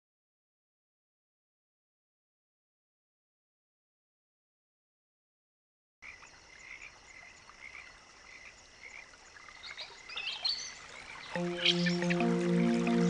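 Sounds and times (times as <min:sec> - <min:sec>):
regular pulsing animal call: 0:06.1 - 0:13.0
chirps: 0:09.6 - 0:13.0
soft sustained music notes: 0:11.3 - 0:13.0.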